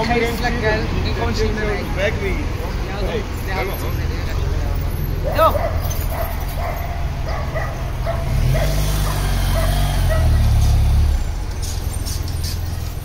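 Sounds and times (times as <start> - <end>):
motorcycle engine running: 7.7 - 10.9.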